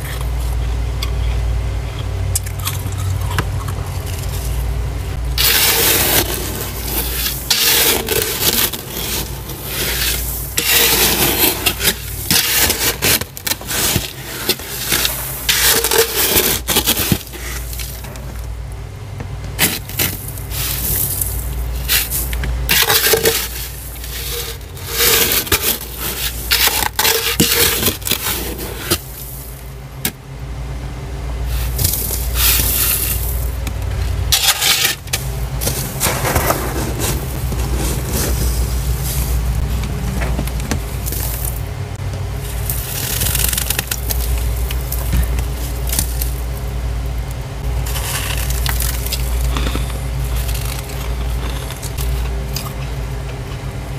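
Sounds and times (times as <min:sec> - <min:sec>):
low steady hum: 0:00.0 - 0:53.9
frost being scraped: 0:04.0 - 0:18.3, 0:19.6 - 0:29.7, 0:31.5 - 0:33.6, 0:34.3 - 0:39.7, 0:42.4 - 0:46.6, 0:47.8 - 0:52.2.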